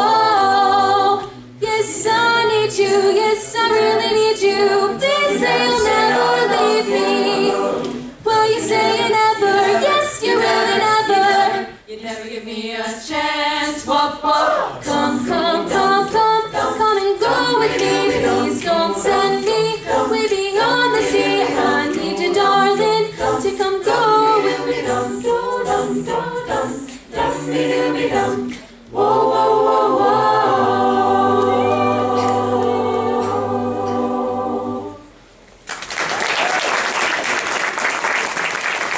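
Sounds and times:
a cappella group singing: 0.0s - 35.3s
audience applause: 35.6s - 38.9s.

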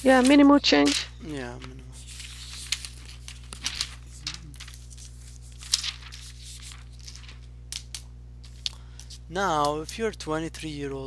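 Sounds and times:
rustling and crinkling: 0.0s - 7.5s
low electrical hum: 0.0s - 11.0s.

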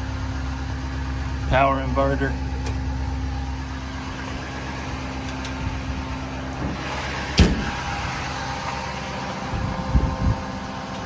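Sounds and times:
diesel engine idling: 0.0s - 11.0s
metal door shutting: 6.6s - 7.8s.

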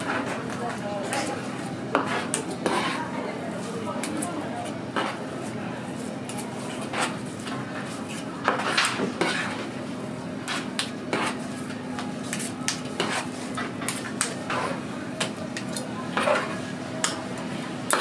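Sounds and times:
knife scraping on plastic cutting board: 1.9s - 3.1s, 6.6s - 7.2s, 8.5s - 9.6s, 10.5s - 11.4s, 12.3s - 14.8s, 16.1s - 16.6s.

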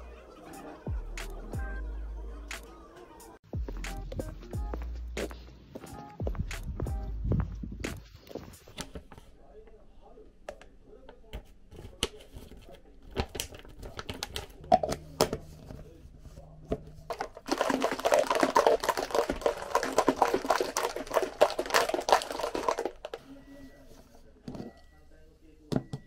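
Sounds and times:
wrapper crinkling: 17.1s - 23.2s.

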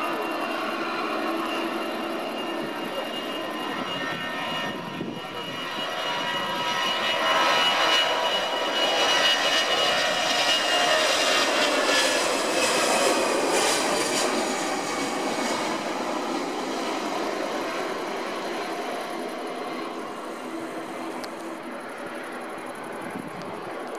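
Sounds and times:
jet engines at takeoff: 0.0s - 23.9s.

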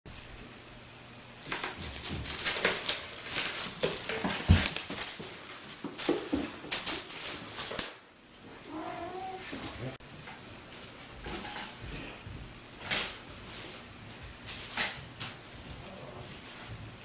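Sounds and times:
foil rustling and crinkling: 1.4s - 7.8s.

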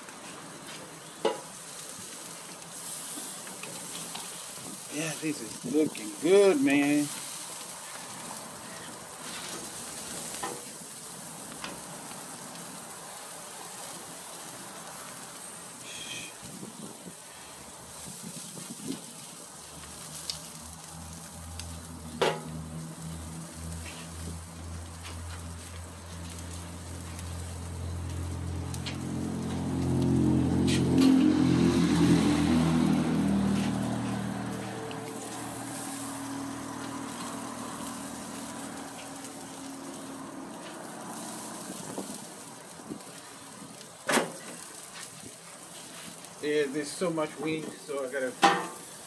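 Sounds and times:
meat sizzling on a charcoal grill: 0.0s - 49.0s
vehicle engine low hum: 0.1s - 48.1s
faint clicks on grill grate: 19.8s - 20.5s.

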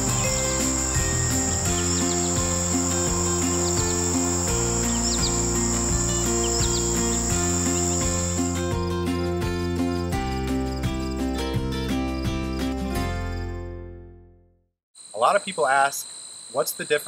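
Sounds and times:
high-pitched insect trill: 0.0s - 9.1s, 9.7s - 11.4s, 15.0s - 17.0s
music of sustained low notes: 0.0s - 10.0s.

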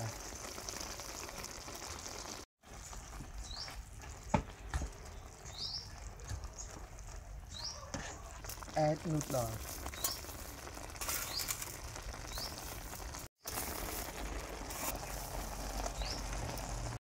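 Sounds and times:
broth simmering in a wok: 0.0s - 17.0s
bird chirps: 5.1s - 6.8s, 15.9s - 16.4s.

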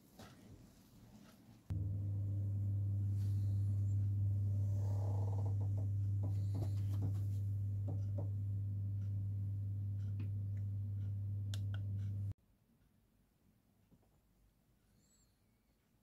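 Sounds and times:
steady low hum: 1.7s - 12.4s
faint clicks and knocks: 3.9s - 9.2s.

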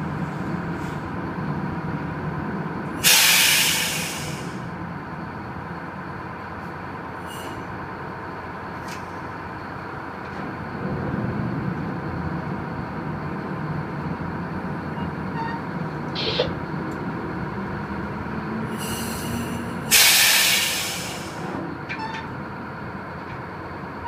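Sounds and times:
diesel engine running: 0.0s - 24.0s
loud hiss: 3.0s - 4.6s, 19.9s - 21.4s.

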